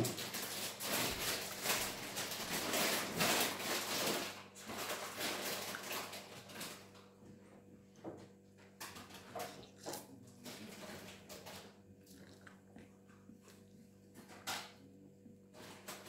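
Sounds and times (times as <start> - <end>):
slurping and chewing noodles: 9.5 - 14.0.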